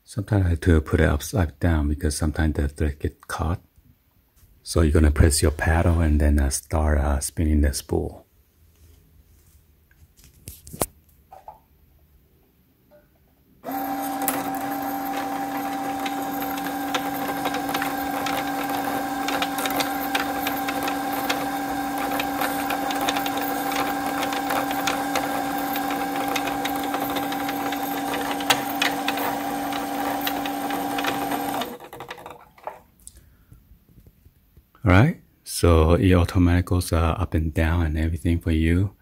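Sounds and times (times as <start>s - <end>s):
sewing machine motor humming: 13.6s - 32.8s.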